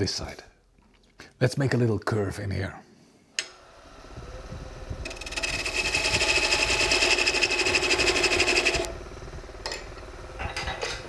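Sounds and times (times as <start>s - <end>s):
lathe humming: 3.4s - 11.0s
gouge cutting wood on lathe: 5.0s - 9.0s.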